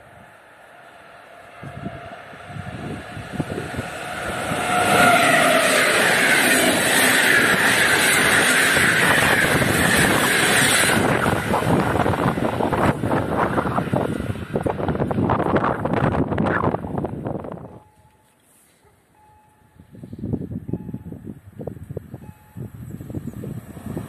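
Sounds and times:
train passing at speed: 0.0 - 18.0, 19.1 - 24.0
wind noise on microphone: 1.6 - 18.1, 19.6 - 24.0.

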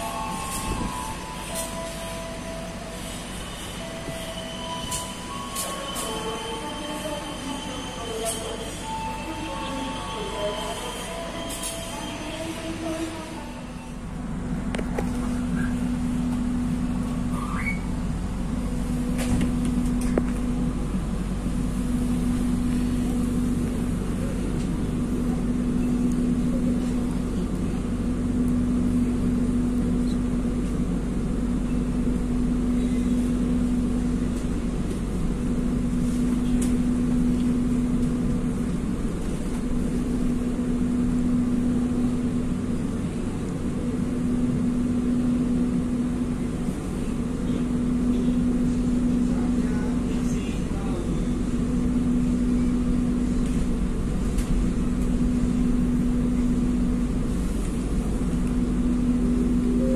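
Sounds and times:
train hum and rumble: 0.0 - 59.9.

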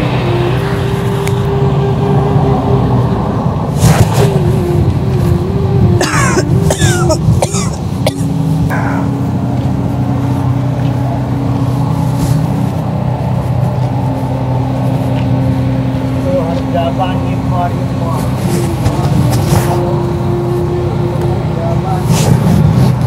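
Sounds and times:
steady motor hum: 0.0 - 23.0
person coughing: 6.0 - 9.2.

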